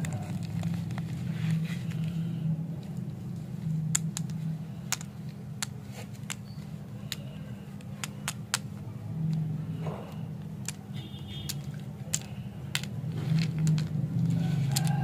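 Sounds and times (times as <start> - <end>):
lollipops clicking together: 3.9 - 9.5, 10.5 - 15.0.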